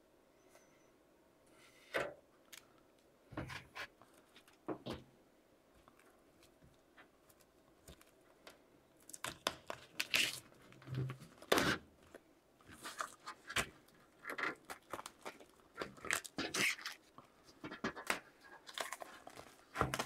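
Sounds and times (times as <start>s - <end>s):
plastic film crackling: 9.0s - 20.0s.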